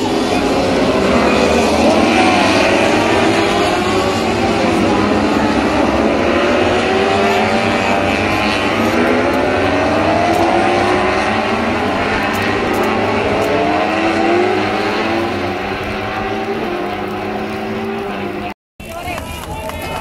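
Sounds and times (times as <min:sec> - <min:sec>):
racing motorcycle engines revving past: 0:00.0 - 0:18.6.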